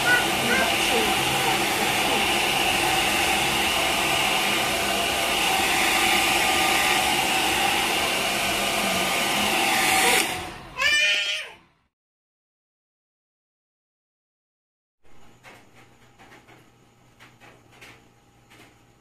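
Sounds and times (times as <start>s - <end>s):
hair dryer blowing: 0.0s - 11.4s.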